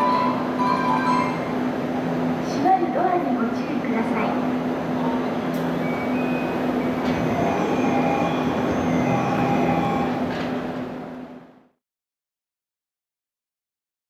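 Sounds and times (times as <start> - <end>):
short beeping tones: 0.0 - 1.5
stopped train humming: 0.0 - 11.7.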